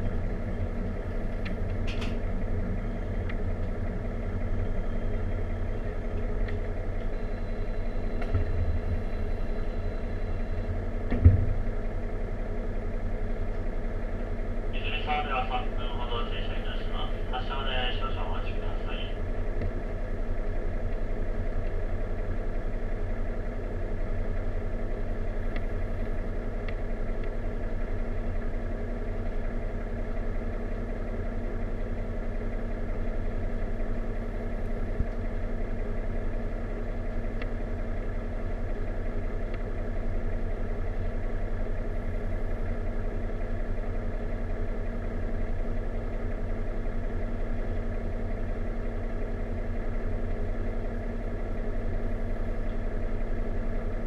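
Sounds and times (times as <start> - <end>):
train engine idling: 0.0 - 54.0.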